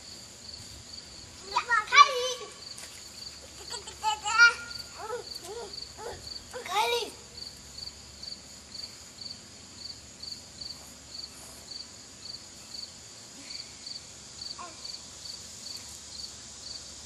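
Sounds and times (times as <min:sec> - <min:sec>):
high-pitched insect chirp: 0:00.0 - 0:17.0
insect drone: 0:00.0 - 0:17.0.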